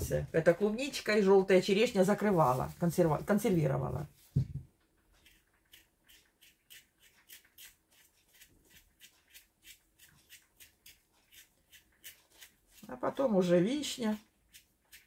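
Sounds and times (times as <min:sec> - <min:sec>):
peeling potato skin by hand: 0:05.0 - 0:13.4, 0:14.1 - 0:15.0.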